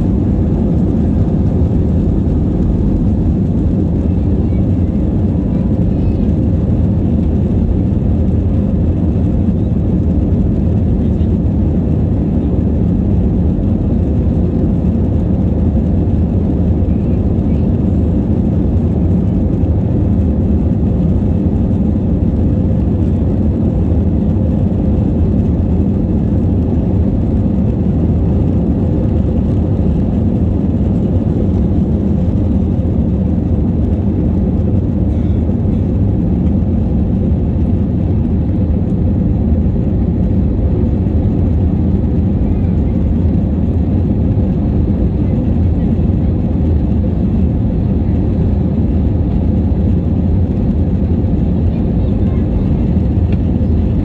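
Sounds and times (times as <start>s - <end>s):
jet cabin engine rumble: 0.0s - 54.0s.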